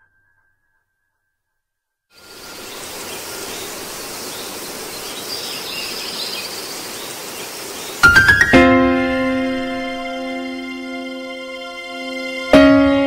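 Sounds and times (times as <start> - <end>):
faint high chirping: 2.2 - 8.6
background music: 8.0 - 13.0.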